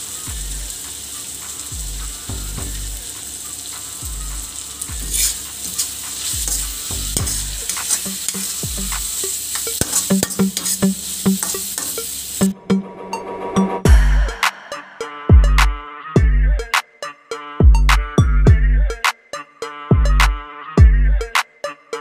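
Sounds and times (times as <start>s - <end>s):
vegetables sizzling in hot oil: 0.0s - 12.6s
spatula scraping and knocking pan: 5.0s - 12.2s.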